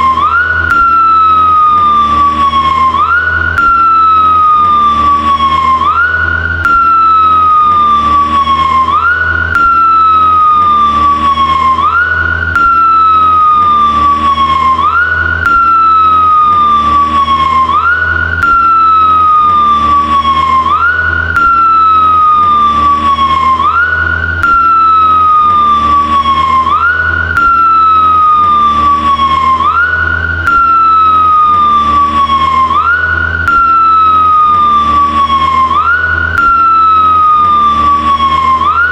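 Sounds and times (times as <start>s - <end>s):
motorcycle engine rumble: 0.0s - 38.9s
police siren wailing: 0.0s - 38.9s.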